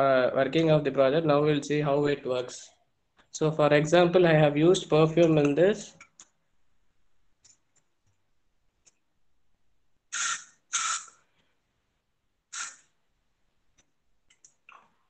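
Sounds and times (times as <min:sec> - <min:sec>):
perfume spray bottle hissing: 0:10.1 - 0:11.2, 0:12.5 - 0:12.9.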